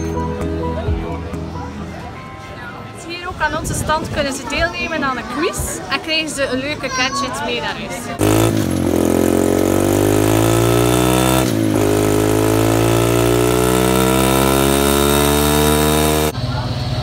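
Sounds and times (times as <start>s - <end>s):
dirt bike engine revving: 8.2s - 16.4s.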